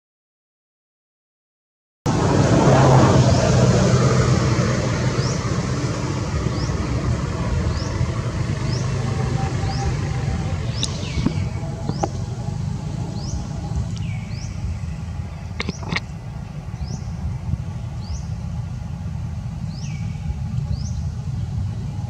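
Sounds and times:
low rumble: 2.1s - 22.0s
high rising chirp: 4.9s - 18.7s.

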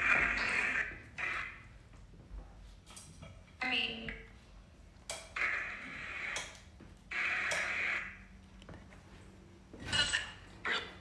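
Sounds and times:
hissing garbled radio sweep: 7.1s - 8.2s.

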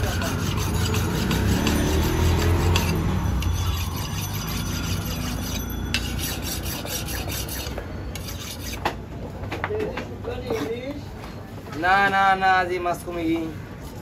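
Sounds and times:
knife scraping on sharpening stone: 0.0s - 8.9s.

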